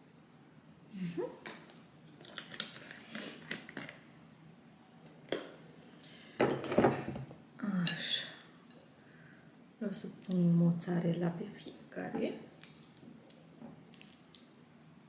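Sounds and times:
dishes clattering: 6.4 - 7.3.

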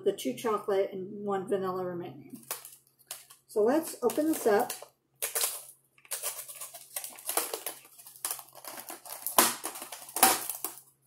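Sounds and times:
plastic container crackling: 2.4 - 11.0.

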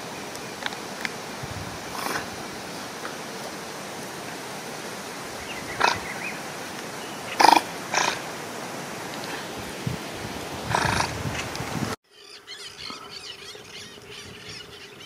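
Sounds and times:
otter calling: 5.4 - 6.4, 7.0 - 8.2, 10.7 - 11.2, 12.2 - 15.0.

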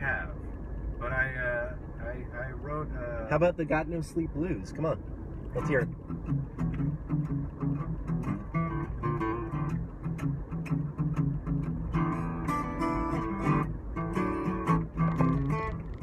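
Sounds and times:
acoustic guitar blues: 5.5 - 16.0.

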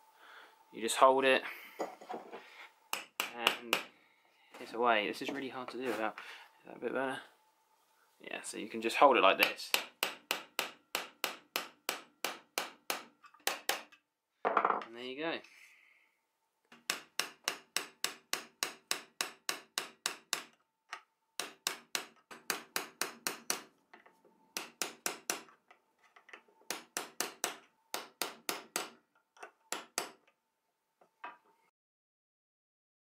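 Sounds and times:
hammer tapping steel tool: 2.9 - 3.9, 9.4 - 14.0, 16.7 - 30.3.

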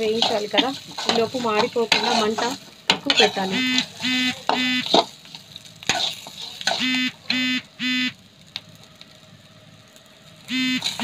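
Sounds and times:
metal spatula scraping pan: 0.0 - 7.0
faint sizzle of frying: 0.0 - 11.0
electronic beeps: 10.5 - 10.8.

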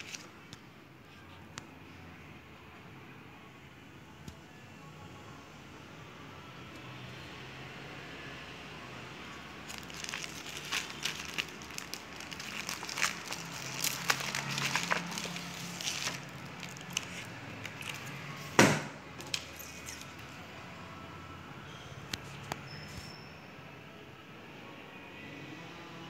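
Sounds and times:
plastic sleeve crinkling: 0.0 - 0.3, 9.5 - 18.6, 19.2 - 20.3
sharp knock: 18.6 - 19.0.

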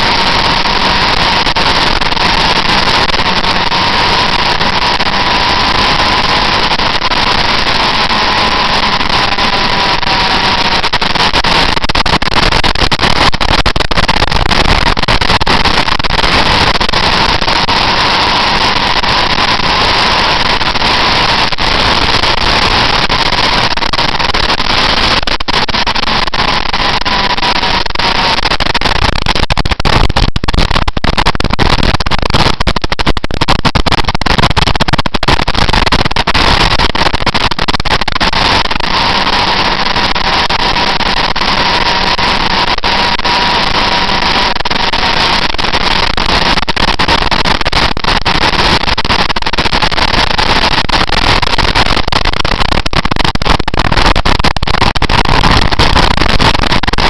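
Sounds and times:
motorcycle engine whine: 0.0 - 36.8, 37.6 - 45.4.

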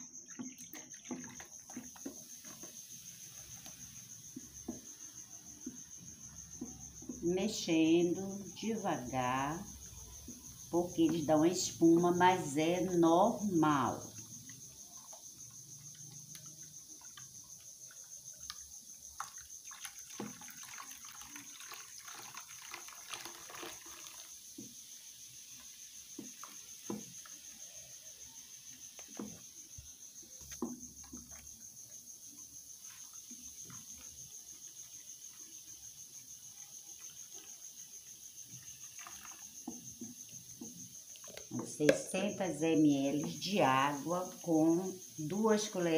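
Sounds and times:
spoon swishing foamy liquid: 0.0 - 6.3, 19.1 - 24.7, 32.8 - 41.6.

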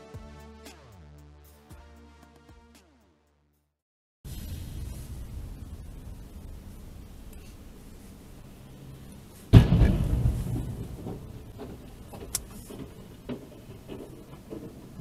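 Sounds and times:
low steady cabin hum: 4.5 - 15.0
sudden heavy thump: 9.5 - 14.8.

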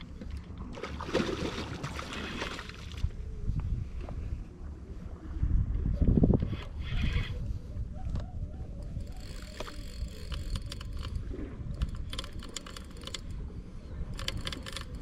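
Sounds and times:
wind rumble on microphone: 0.0 - 15.0
fishing reel clicking: 8.8 - 13.4, 14.1 - 15.0.

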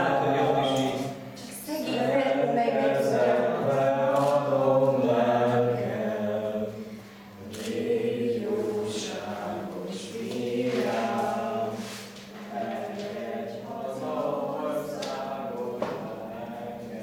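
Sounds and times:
group singing a cappella: 0.0 - 17.0.

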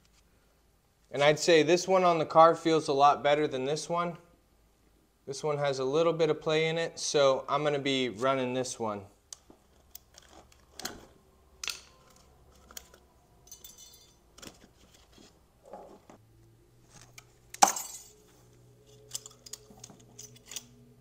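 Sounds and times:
metal parts clinking: 11.6 - 14.5, 17.6 - 18.2, 18.8 - 20.8.

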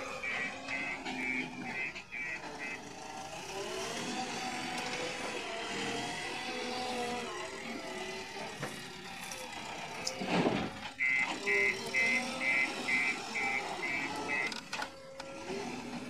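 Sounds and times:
reversing beeper: 0.0 - 3.0, 11.0 - 14.7
diesel engine revving under load: 0.0 - 16.0.

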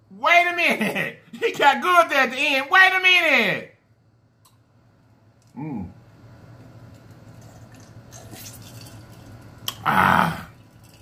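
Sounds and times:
man humming mm: 5.6 - 6.0, 9.8 - 10.6.

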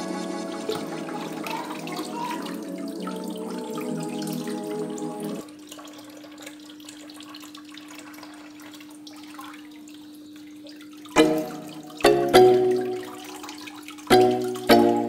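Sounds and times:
loud music: 0.0 - 5.3, 11.2 - 13.2.

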